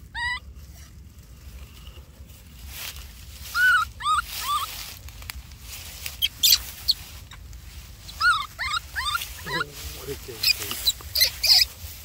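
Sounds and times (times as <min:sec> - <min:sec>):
baby monkey squeaky cries: 0:00.0 - 0:00.5, 0:03.4 - 0:04.9, 0:06.1 - 0:07.4, 0:08.0 - 0:12.0
dry grass crackling: 0:00.0 - 0:12.0.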